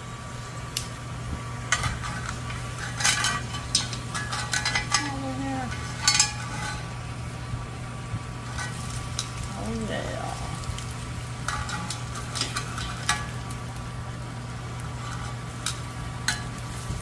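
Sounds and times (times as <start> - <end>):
steady low hum: 0.0 - 17.0
metal tongs clinking on grill pan: 1.7 - 7.0, 8.4 - 13.9, 14.5 - 17.0.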